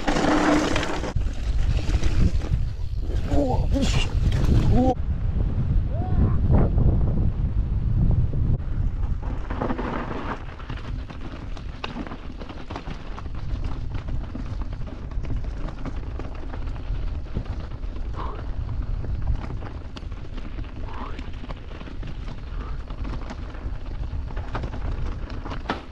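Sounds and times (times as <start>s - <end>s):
tyres crunching on loose rock: 0.0s - 3.3s, 9.0s - 25.9s
low rumble: 1.8s - 9.3s
bike rattling with sharp clicks: 9.5s - 25.9s.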